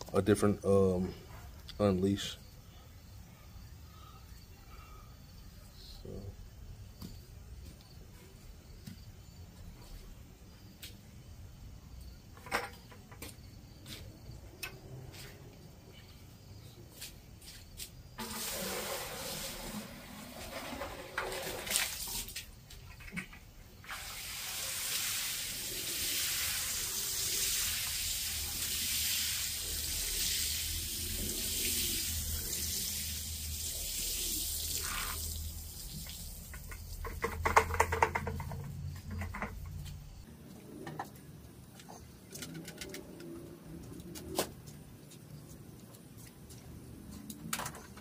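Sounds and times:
crackling splashing: 18.2 - 22.5, 23.2 - 37.2
water spraying onto rug: 18.2 - 22.5, 23.8 - 37.2
water dripping: 23.8 - 37.4.

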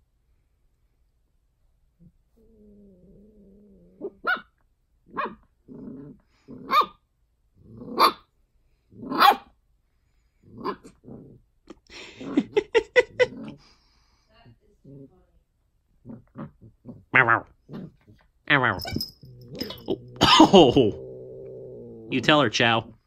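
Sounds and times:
puppy growling: 2.0 - 4.4, 5.1 - 6.9, 10.4 - 13.8, 16.0 - 23.0
puppy yapping: 4.1 - 4.5, 9.1 - 9.5.

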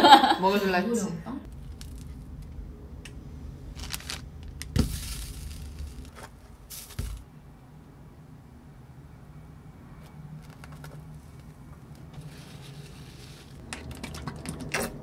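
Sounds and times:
low steady hum: 0.0 - 15.0
rustling and scraping: 3.7 - 7.2, 10.0 - 13.7.

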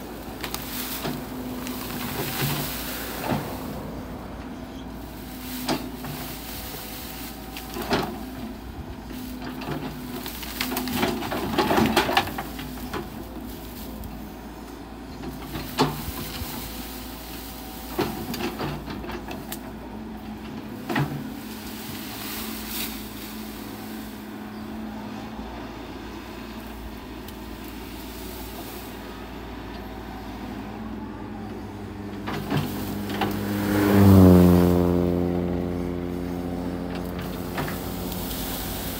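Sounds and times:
branches snapping: 0.0 - 3.8, 5.0 - 14.3, 15.3 - 19.8, 20.7 - 24.2, 32.2 - 38.9
excavator diesel engine running: 0.0 - 38.9
bucket tearing at branches: 0.3 - 3.9, 21.3 - 24.0, 32.3 - 38.9.

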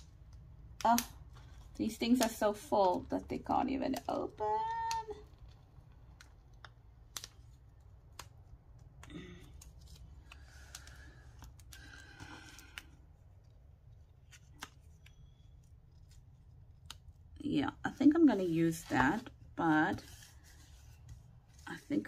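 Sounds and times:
paper rustling and clicks: 0.0 - 12.9.

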